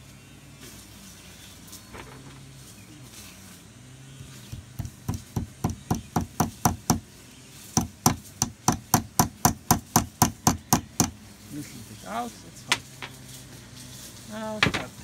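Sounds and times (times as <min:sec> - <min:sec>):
hammer tapping nail into wood: 0:04.5 - 0:07.0, 0:07.8 - 0:11.2.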